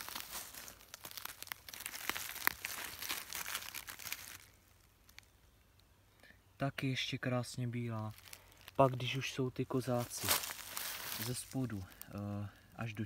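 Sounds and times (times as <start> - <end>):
footsteps crunching dry leaves: 0.0 - 5.3, 7.8 - 12.2.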